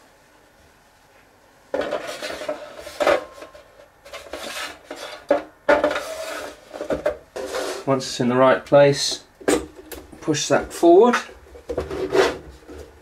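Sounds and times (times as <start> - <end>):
metal scraping and clattering: 1.8 - 8.0, 11.6 - 12.9.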